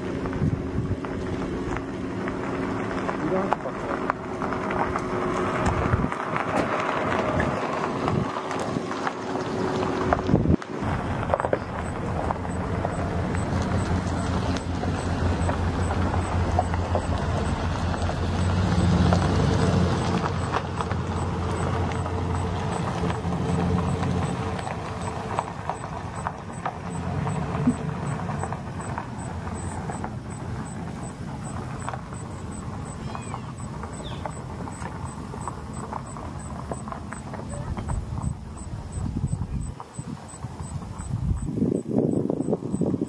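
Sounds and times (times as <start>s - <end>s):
car engine humming: 0.0s - 43.0s
faint high ticking: 10.8s - 43.0s.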